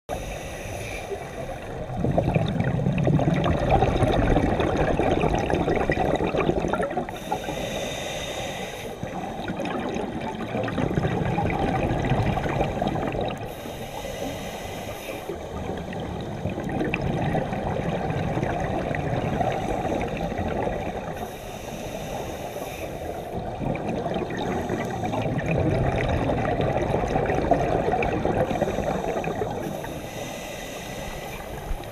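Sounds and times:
regulator inhale hiss: 0.1s - 1.8s, 7.1s - 9.6s, 12.7s - 16.2s, 19.3s - 23.6s, 24.4s - 25.5s, 28.4s - 31.9s
exhaled bubbling rumble: 1.5s - 7.2s, 9.0s - 13.5s, 15.4s - 21.2s, 23.4s - 29.8s.

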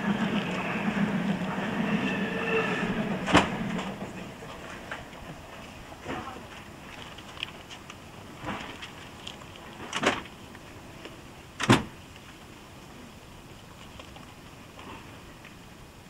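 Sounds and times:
tape recording background noise: 0.0s - 16.0s
train doors slamming shut: 1.8s - 5.1s, 9.8s - 10.3s, 11.6s - 12.0s.

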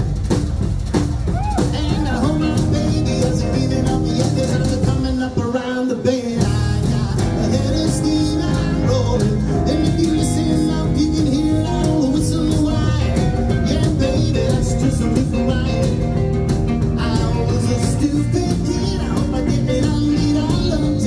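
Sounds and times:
live rockabilly band playing: 0.0s - 21.0s.

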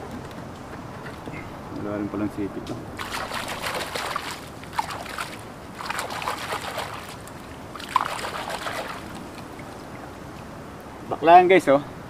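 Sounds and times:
sharp water plop: 3.0s - 9.8s
shallow water splashing: 3.0s - 10.4s.

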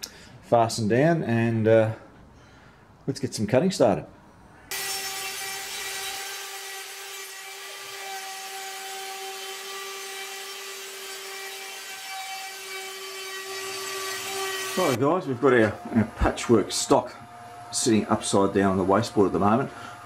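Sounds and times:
router spindle cutting wood: 4.7s - 17.0s.

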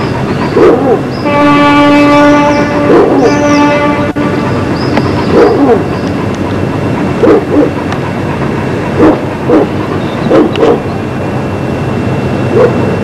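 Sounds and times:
dog barking: 0.6s - 1.0s, 2.8s - 3.4s, 5.2s - 5.9s, 7.2s - 7.8s, 9.0s - 10.9s, 12.5s - 12.9s.

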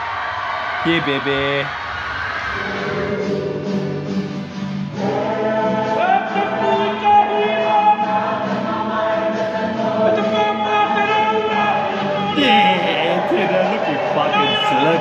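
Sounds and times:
group singing in unison: 1.7s - 15.0s.

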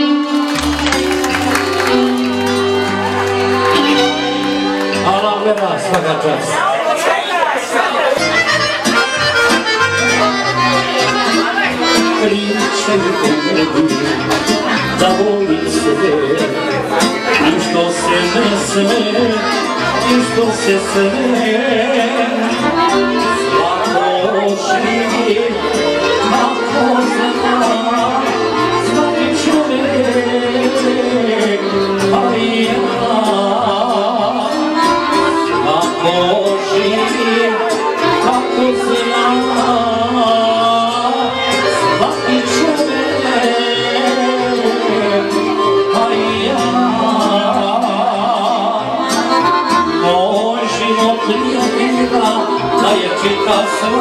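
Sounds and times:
violin: 0.0s - 6.4s, 8.2s - 54.0s
man singing into a microphone: 11.1s - 54.0s.

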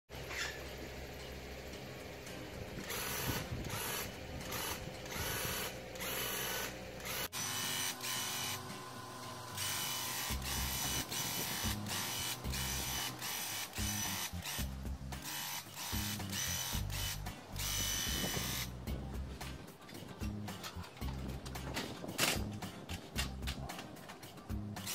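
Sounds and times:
paint sprayer pump bursts: 2.8s - 18.8s.

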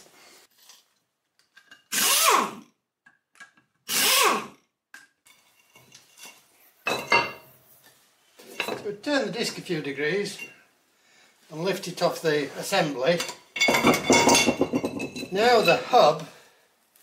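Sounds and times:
pneumatic impact wrench: 1.9s - 2.6s, 3.8s - 4.6s.

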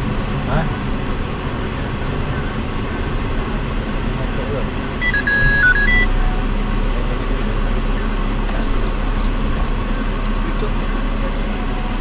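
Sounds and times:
car engine and road noise: 0.0s - 12.0s
electronic beeps: 5.0s - 6.4s.

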